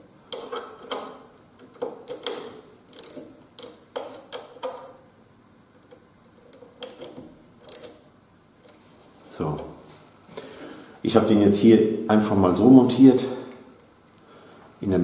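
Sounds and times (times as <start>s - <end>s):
allen key clicking on clamp screw: 0.3s - 5.0s.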